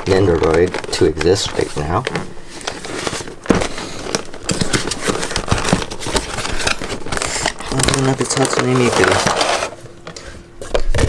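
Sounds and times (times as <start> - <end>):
cardboard and plastic rustling: 0.0 - 11.0.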